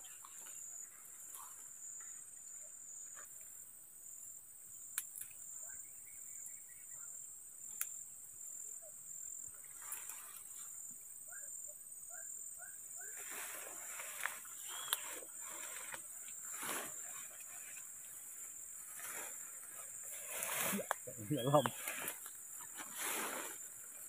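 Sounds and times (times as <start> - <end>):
insect chorus: 0.0 - 24.0
rustling through undergrowth: 13.0 - 24.0.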